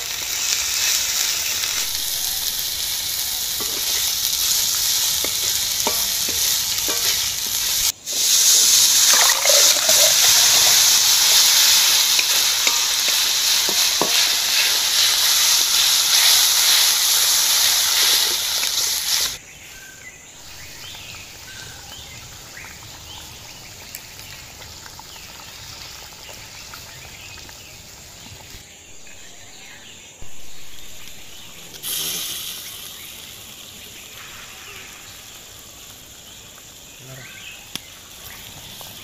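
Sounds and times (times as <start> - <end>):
boiling pan hissing surges: 0.0 - 19.4, 30.7 - 36.8
curry simmering: 0.0 - 19.4, 20.5 - 28.6
water hissing in hot wok: 0.0 - 28.7, 30.3 - 39.0
insects: 0.0 - 39.0.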